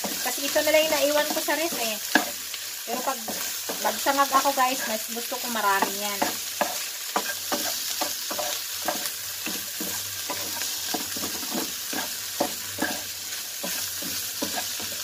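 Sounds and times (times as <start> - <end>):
food sizzling in oil: 0.0 - 15.0
spatula scraping a pan: 0.0 - 15.0.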